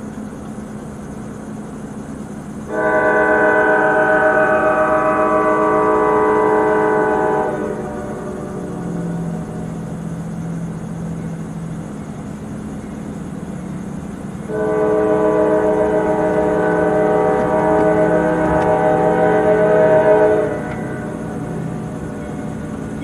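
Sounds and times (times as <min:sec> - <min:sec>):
train rumbling: 0:00.0 - 0:23.0
locomotive air horn: 0:02.7 - 0:09.7, 0:14.5 - 0:22.6.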